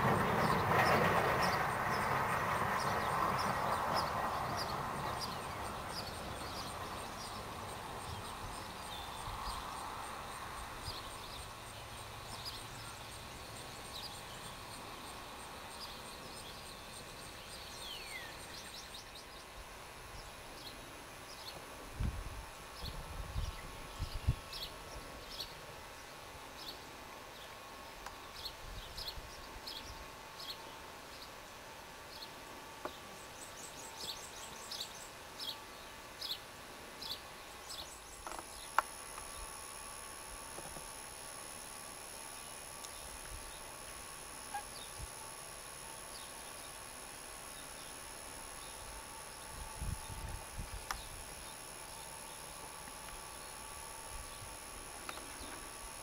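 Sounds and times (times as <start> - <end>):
steady hiss: 0.0 - 56.0
birds chipping: 32.1 - 56.0.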